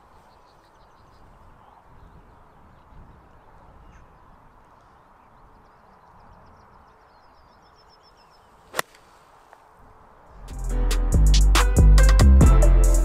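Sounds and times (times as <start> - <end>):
golf club striking ball: 8.7 - 9.1
music: 10.4 - 13.0.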